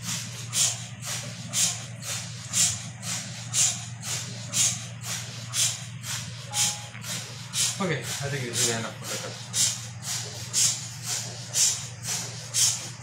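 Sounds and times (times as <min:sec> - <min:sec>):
rhythmic gas hiss: 0:00.0 - 0:13.0
low hum: 0:06.5 - 0:07.4.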